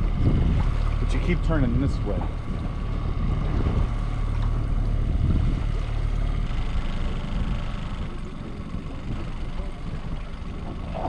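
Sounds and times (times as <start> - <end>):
boat motor humming: 0.0 - 11.0
water washing around hull: 0.0 - 11.0.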